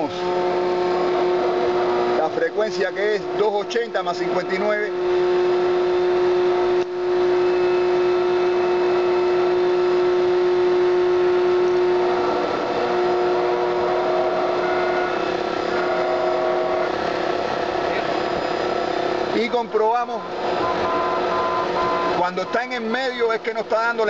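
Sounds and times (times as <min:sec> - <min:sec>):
higher radio tones: 0:19.3 - 0:23.2
radio receiver steady tone: 0:19.8 - 0:22.9.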